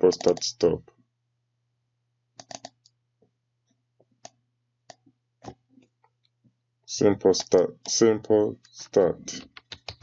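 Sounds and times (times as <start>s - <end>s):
computer mouse and keyboard clicks: 0.1s - 0.5s, 2.4s - 3.0s, 9.3s - 10.0s.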